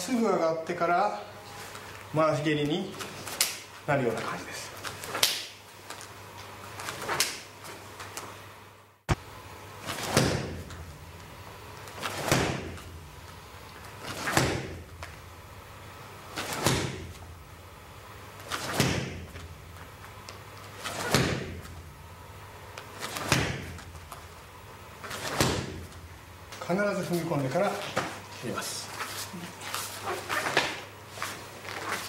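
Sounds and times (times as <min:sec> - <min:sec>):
kicks smacking punching mitt: 0:09.9 - 0:10.8, 0:12.1 - 0:12.9, 0:14.1 - 0:15.0, 0:16.4 - 0:17.2, 0:18.6 - 0:19.4, 0:20.9 - 0:21.7, 0:23.1 - 0:23.9, 0:25.2 - 0:25.9
swish of kicks: 0:12.0 - 0:12.9, 0:16.4 - 0:17.2, 0:18.5 - 0:19.4, 0:20.9 - 0:21.7, 0:23.1 - 0:23.9.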